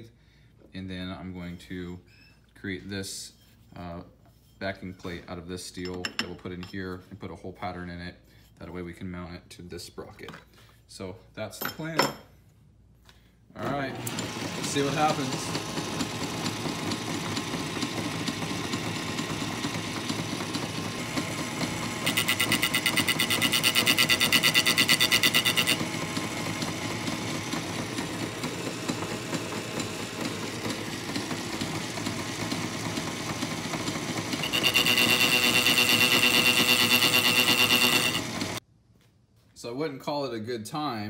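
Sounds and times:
metal lathe cutting steel: 13.9 - 38.6
lathe tool chattering: 14.0 - 38.6.

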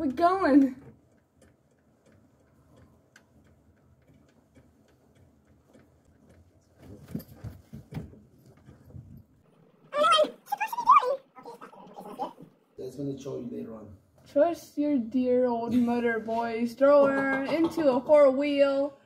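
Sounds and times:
faint regular ticking: 0.0 - 6.8.

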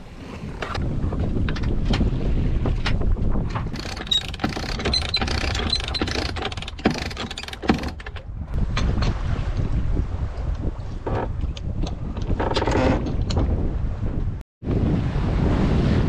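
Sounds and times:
wind noise on microphone: 0.0 - 16.0
winch ratcheting clicks: 3.7 - 8.3.

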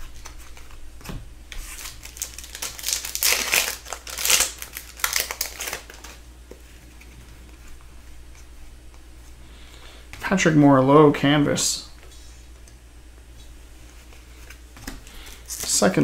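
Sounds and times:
foil wrapper crinkling: 1.6 - 6.2.

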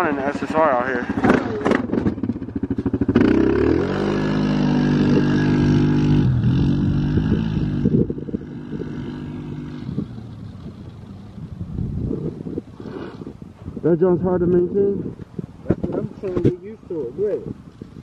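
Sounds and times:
quad engine revving: 0.0 - 11.3.

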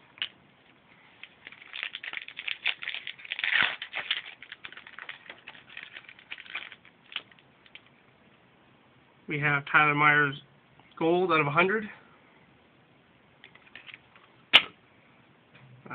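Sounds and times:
foil wrapper crinkling: 1.0 - 7.9.

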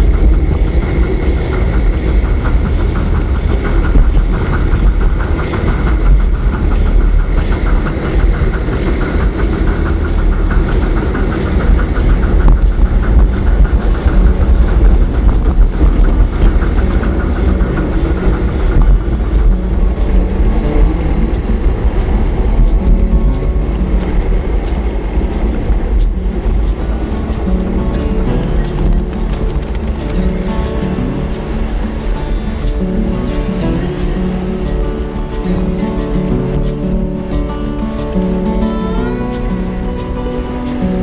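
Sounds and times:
model steam locomotive running: 0.0 - 41.0.

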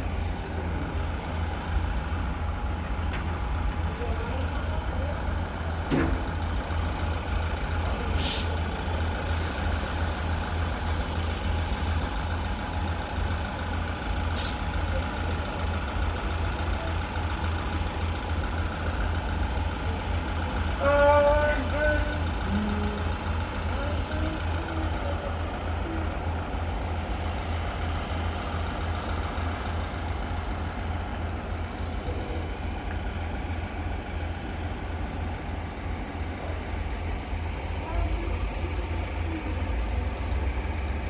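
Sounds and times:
diesel train engine rumbling: 0.0 - 41.0
compressed air hissing: 9.3 - 12.4.

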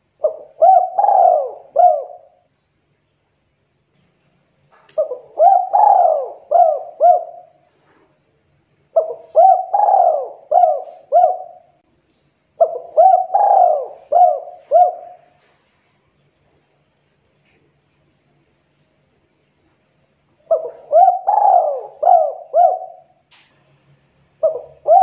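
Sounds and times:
dove cooing: 0.0 - 2.5, 5.0 - 7.7, 8.9 - 11.8, 12.6 - 15.5, 20.4 - 23.2, 24.4 - 25.0.

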